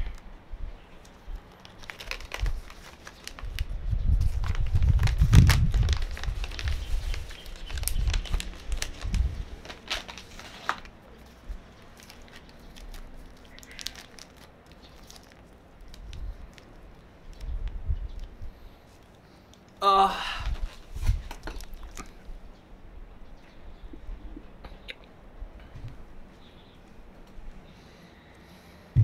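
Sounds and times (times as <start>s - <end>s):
paper bag crinkling and rustling: 1.4s - 16.8s.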